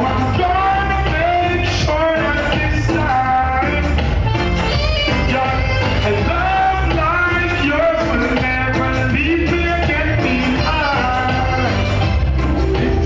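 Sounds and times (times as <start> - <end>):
heavy bass line: 0.0 - 13.0
person singing: 0.0 - 13.0.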